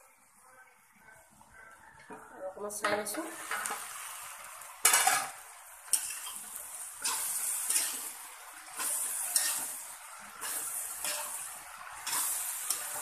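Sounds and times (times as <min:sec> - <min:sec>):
sizzling in a hot pan: 0:02.6 - 0:13.0
spatula scraping a wok: 0:04.8 - 0:13.0.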